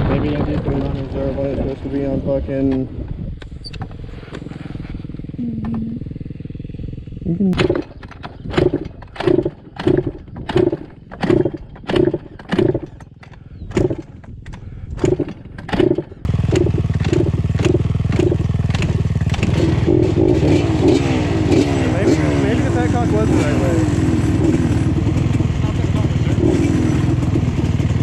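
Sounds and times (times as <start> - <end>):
two-stroke engine sputtering and running: 0.0 - 28.0.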